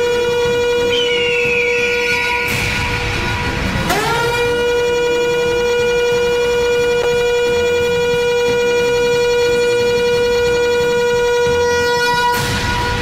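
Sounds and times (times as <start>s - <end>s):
siren-like electronic tone: 0.0s - 13.0s.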